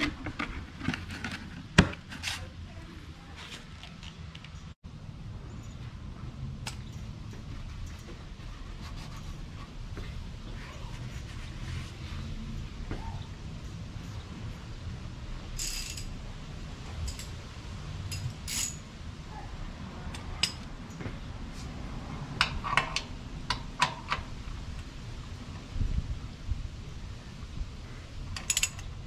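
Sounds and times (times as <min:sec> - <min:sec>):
metal tools clinking: 0:15.6 - 0:16.2, 0:18.1 - 0:18.9, 0:28.4 - 0:28.9.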